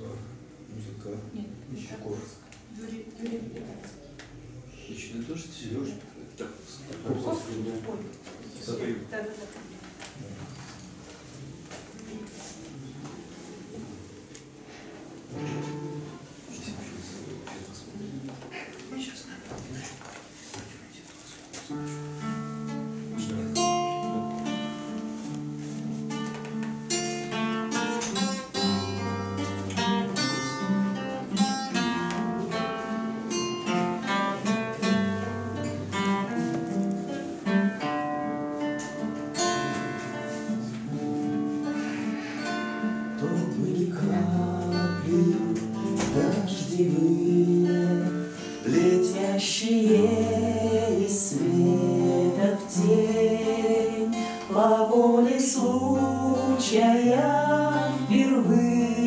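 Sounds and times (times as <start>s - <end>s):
acoustic guitars playing: 0.0s - 0.8s, 10.8s - 18.2s, 21.5s - 59.0s
people singing: 43.1s - 59.0s.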